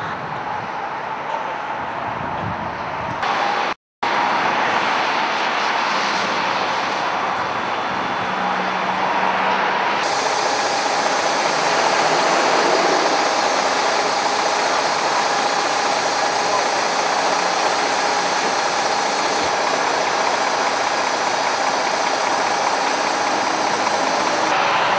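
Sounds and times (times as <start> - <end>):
vehicle engine running: 10.0 - 24.9.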